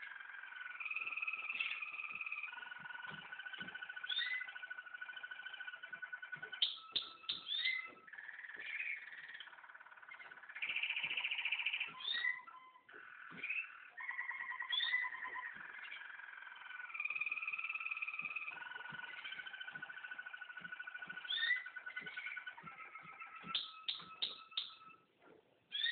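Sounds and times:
canary singing trills: 0.0s - 25.1s, 25.7s - 25.9s.

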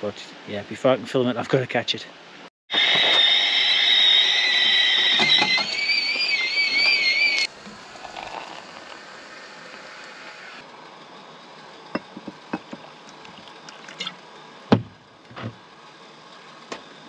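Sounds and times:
kettle whistling: 2.7s - 10.6s.

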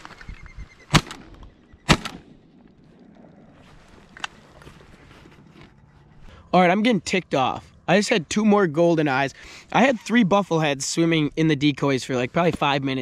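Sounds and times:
shotgun shots: 0.9s - 2.7s.

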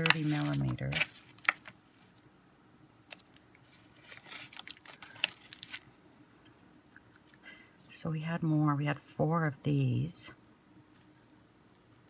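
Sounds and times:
plastic bag rustling: 0.0s - 2.2s, 3.1s - 6.0s.

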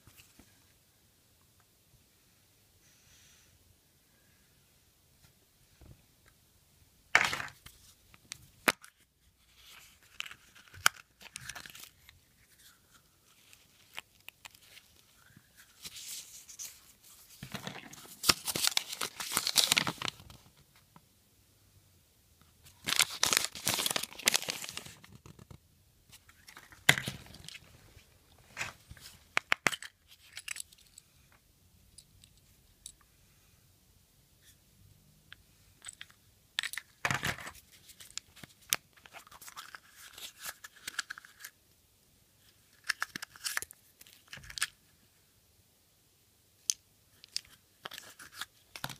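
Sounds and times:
paper crinkling: 8.7s - 20.6s, 22.7s - 27.8s.

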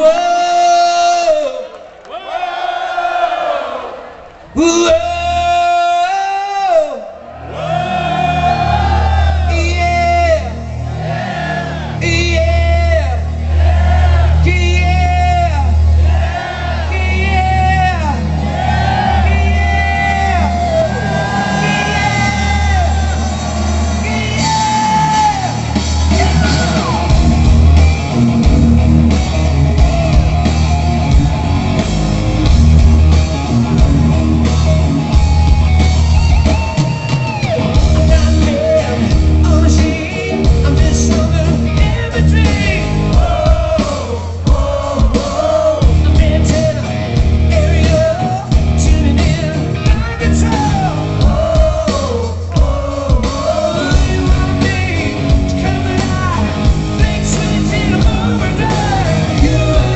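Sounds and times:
live rock band: 8.1s - 59.9s
man singing: 19.0s - 27.2s, 37.6s - 59.9s.

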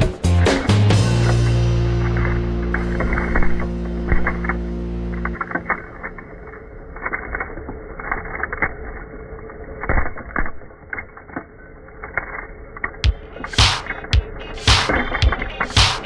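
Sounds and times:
machine hum: 0.0s - 9.4s, 13.0s - 16.0s.

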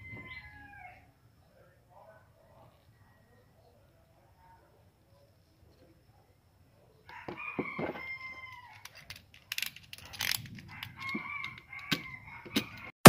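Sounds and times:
rooster crowing: 0.0s - 1.1s, 7.1s - 8.8s, 10.7s - 12.9s
plastic clicks and scrapes: 8.7s - 12.9s.

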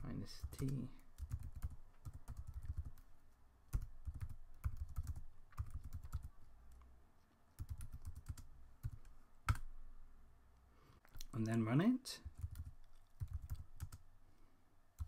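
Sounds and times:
keyboard typing: 0.3s - 3.1s, 3.7s - 6.4s, 7.6s - 9.7s, 12.2s - 14.1s.

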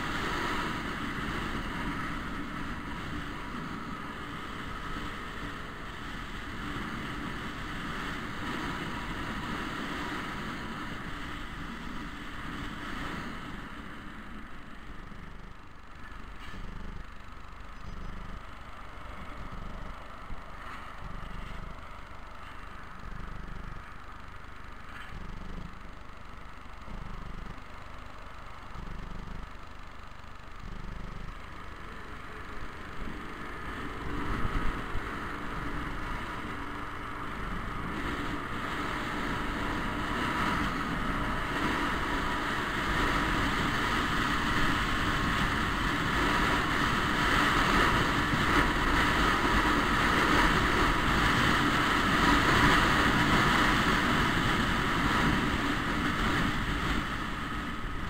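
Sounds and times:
wind noise on microphone: 0.0s - 14.9s, 31.4s - 58.0s
scooter engine idling and accelerating: 0.0s - 58.0s.

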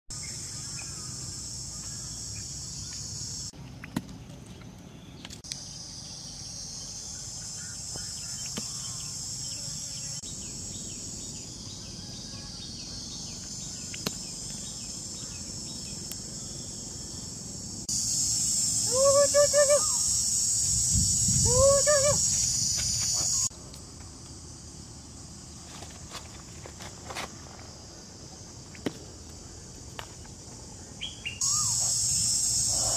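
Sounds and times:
chorus of forest insects: 0.1s - 4.3s, 4.9s - 32.9s
short high calls: 18.7s - 23.5s, 31.4s - 32.9s.

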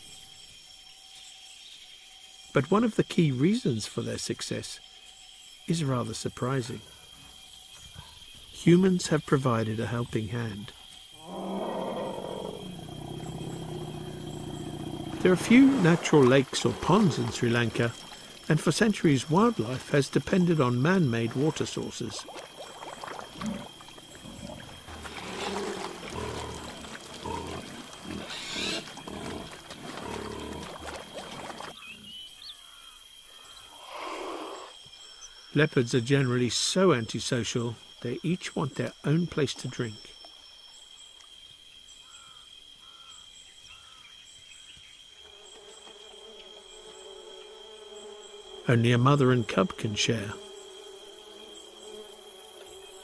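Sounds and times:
high insect drone: 0.0s - 53.0s
short insect chirps: 3.9s - 35.6s
flying insect buzzing: 10.8s - 18.5s, 22.4s - 32.8s, 45.2s - 53.0s
wild boar grunting: 11.2s - 18.0s, 23.3s - 32.1s
water splashing: 12.5s - 31.9s.

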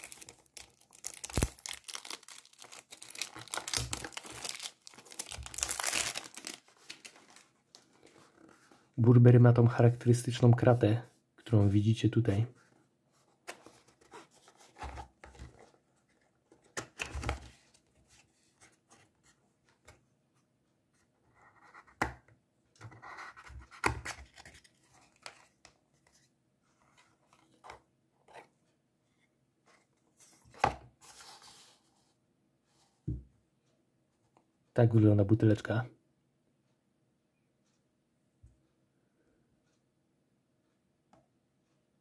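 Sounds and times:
cardboard rustling and scraping: 29.7s - 32.1s.

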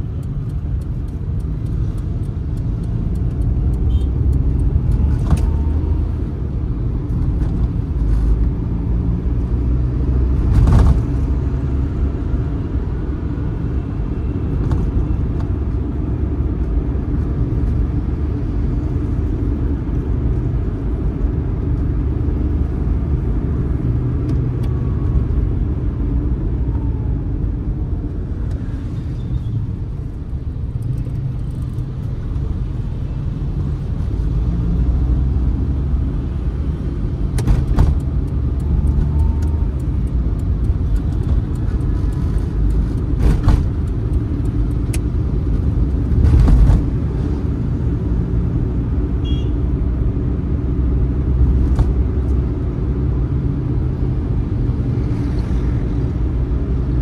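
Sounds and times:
sharp clicks: 0.0s - 5.5s
road rumble: 0.0s - 57.0s.

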